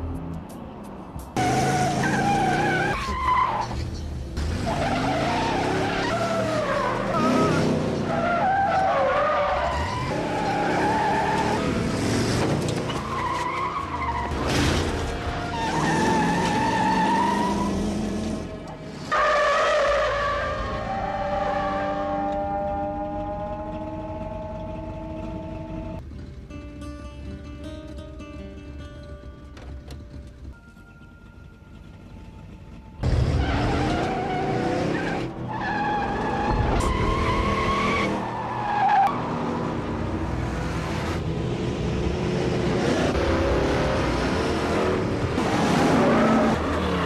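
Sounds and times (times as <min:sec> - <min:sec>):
car tyres squealing: 0:01.4 - 0:25.9, 0:33.0 - 0:39.4.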